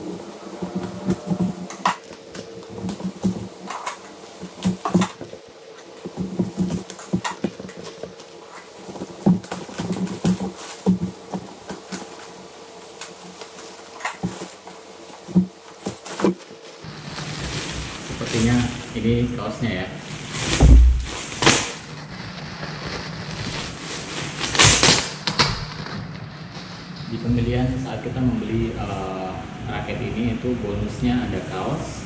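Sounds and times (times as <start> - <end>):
plastic and cardboard rustling: 0.0 - 27.8
packing tape tearing: 0.5 - 19.0, 20.1 - 27.1.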